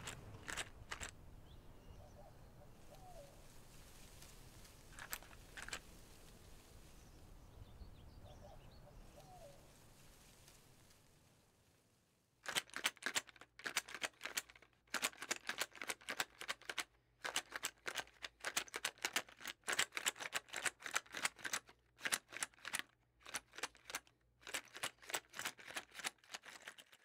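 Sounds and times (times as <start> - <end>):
rapid sharp clicking taps: 12.5 - 26.9.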